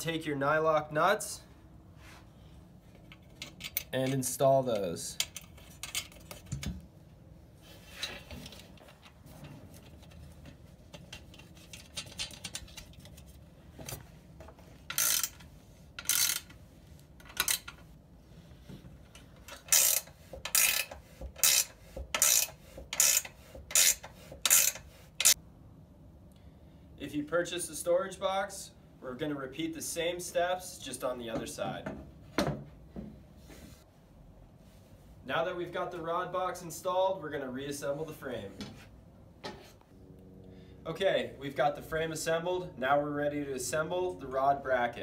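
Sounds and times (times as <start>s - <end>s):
wrench ratcheting: 14.9s - 16.6s, 17.2s - 17.8s, 19.5s - 25.4s.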